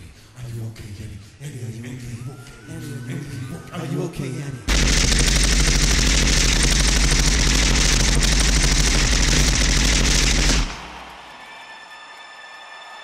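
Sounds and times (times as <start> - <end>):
machine-gun fire sound effect: 4.7 - 11.3.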